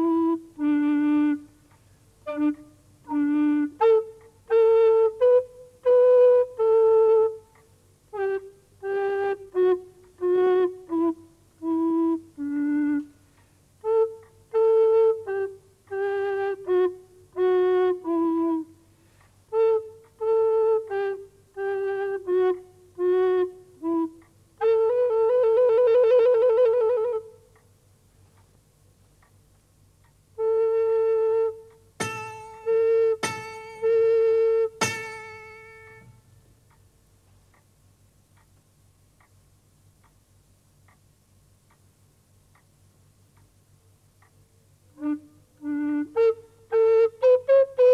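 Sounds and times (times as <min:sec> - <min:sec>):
recorder-like pipe playing slow tune: 0:00.0 - 0:01.6, 0:30.4 - 0:36.4, 0:44.9 - 0:47.9.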